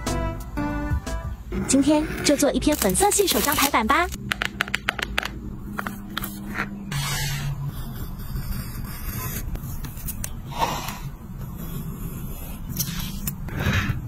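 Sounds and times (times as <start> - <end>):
steady low hum: 0.2 - 14.0
paper rustling: 2.7 - 3.8.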